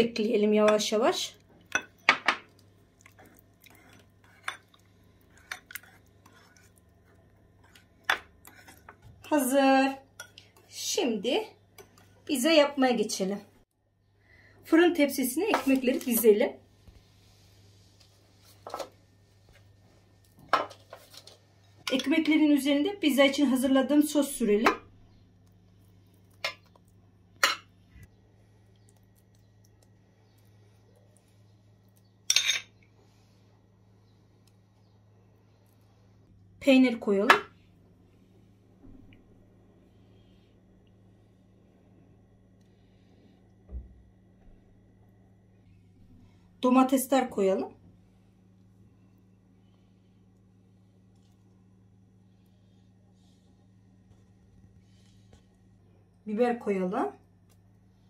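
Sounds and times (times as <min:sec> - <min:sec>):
faint low hum: 0:00.0 - 0:58.0
whisk stirring thick sauce: 0:03.2 - 0:07.8.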